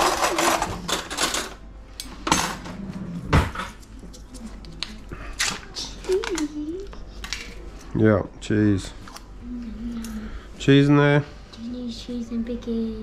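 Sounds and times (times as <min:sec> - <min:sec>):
utensils scraping and rustling: 0:00.0 - 0:06.5.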